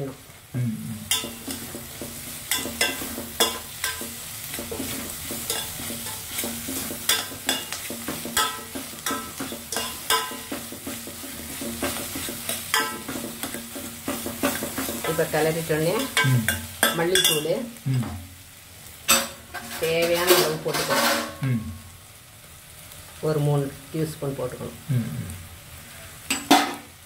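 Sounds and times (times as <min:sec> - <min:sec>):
food sizzling in oil: 0:00.0 - 0:27.0
metal spoon clinking on pot: 0:01.1 - 0:01.7, 0:02.5 - 0:04.1, 0:05.4 - 0:10.7, 0:11.8 - 0:15.2, 0:16.0 - 0:17.5.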